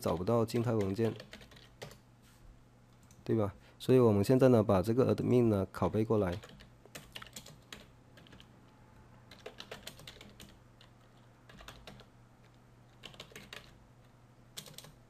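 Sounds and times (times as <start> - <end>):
keyboard typing: 0.0 - 2.0, 6.2 - 8.5, 9.3 - 15.0.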